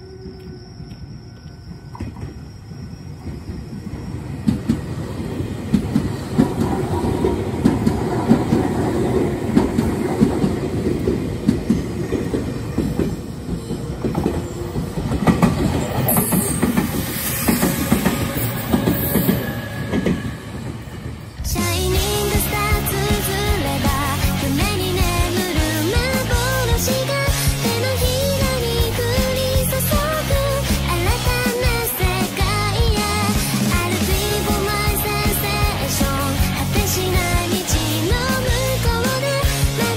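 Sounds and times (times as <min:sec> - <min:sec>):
high squeal: 0:00.0 - 0:06.4, 0:12.5 - 0:25.8
electric train passing: 0:00.0 - 0:39.9
wheels clacking over rail joints: 0:04.4 - 0:39.9.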